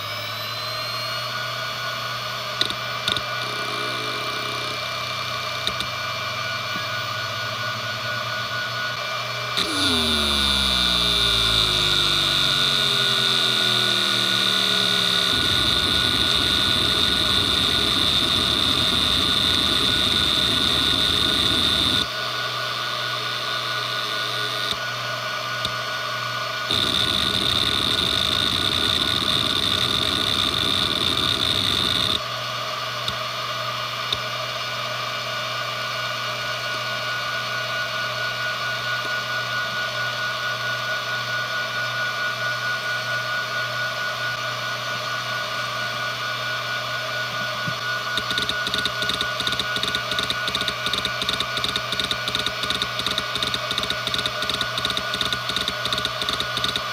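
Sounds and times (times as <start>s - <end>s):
hard drive spindle whine: 0.0s - 56.9s
hard drive seek chatter: 2.5s - 6.0s, 9.6s - 22.1s, 26.7s - 32.2s, 47.4s - 56.9s.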